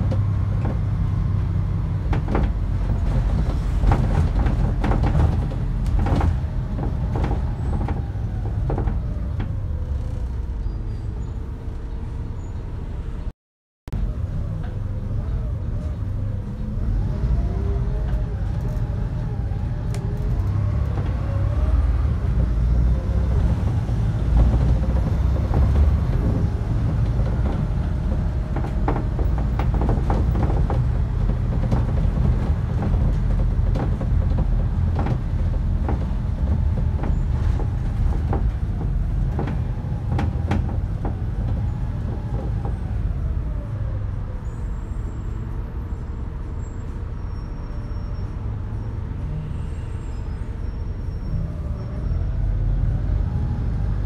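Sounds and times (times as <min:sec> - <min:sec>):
bus engine and road drone: 0:00.0 - 0:54.0
sharp clicks and rattles: 0:24.4 - 0:42.7.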